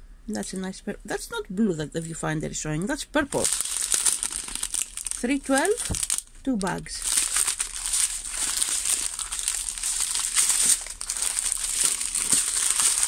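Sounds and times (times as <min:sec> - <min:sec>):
plastic bags crinkling: 0:03.3 - 0:13.0.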